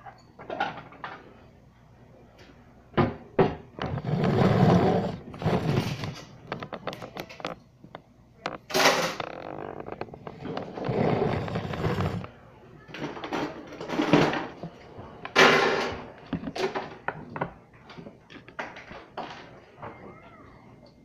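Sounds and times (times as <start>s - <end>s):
scraping noise: 3.8s - 6.3s, 8.9s - 12.3s
rubbing and rustling: 3.8s - 7.4s.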